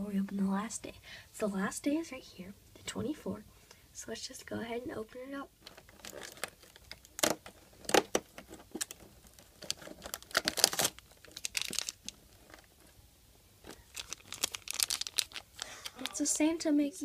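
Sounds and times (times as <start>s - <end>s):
cardboard tearing and crinkling: 5.6s - 12.7s, 13.6s - 16.2s
cardboard snapping: 6.4s - 9.0s.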